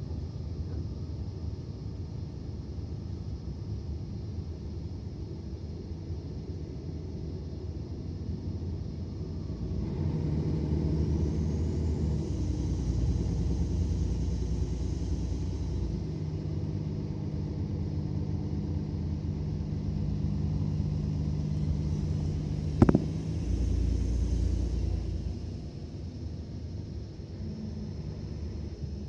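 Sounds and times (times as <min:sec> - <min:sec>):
bus diesel engine rumble: 0:00.0 - 0:29.0
sharp knock: 0:22.8 - 0:23.2.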